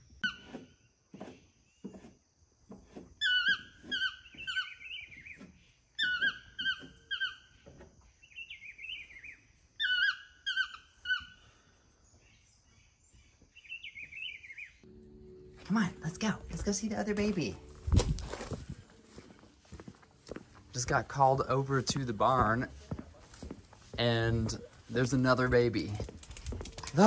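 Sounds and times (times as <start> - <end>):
toucan yelping calls: 3.2 - 11.6.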